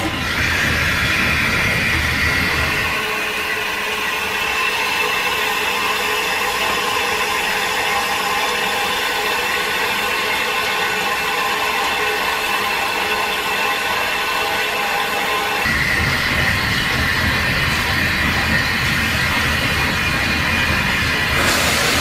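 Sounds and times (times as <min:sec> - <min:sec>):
steam hissing from valve: 0:15.7 - 0:22.0.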